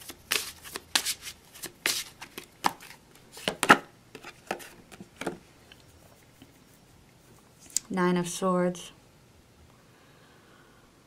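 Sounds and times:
cards snapping and tapping: 0.3 - 5.4.

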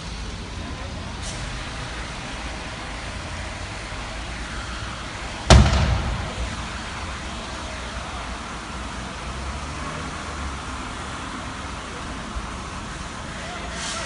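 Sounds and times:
loud bang: 5.5 - 7.5
steady low rumble: 5.5 - 7.6.

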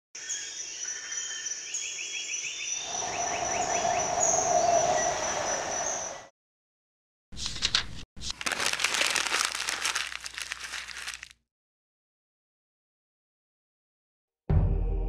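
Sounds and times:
insects chirping: 0.2 - 6.3
rushing noise: 2.9 - 6.3.

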